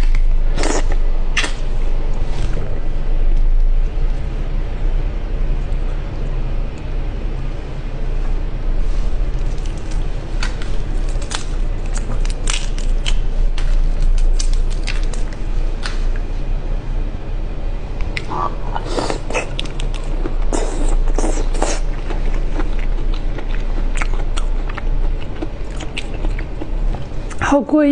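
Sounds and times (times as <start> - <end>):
low hum: 0.0 - 27.9
shrimp shell cracking: 10.4 - 16.0.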